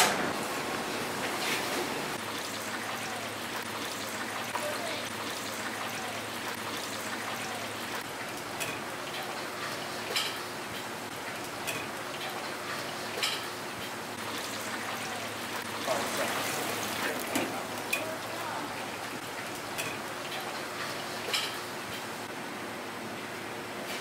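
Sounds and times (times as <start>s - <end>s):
oil sizzling in a deep fryer: 0.0s - 24.0s
tongs clicking on fryer basket: 8.6s - 9.4s, 10.1s - 14.0s, 19.4s - 22.0s.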